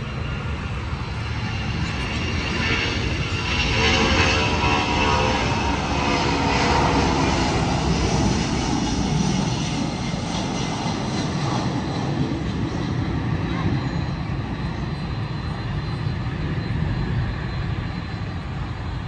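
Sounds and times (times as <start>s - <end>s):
jet engines at takeoff: 0.0s - 19.0s.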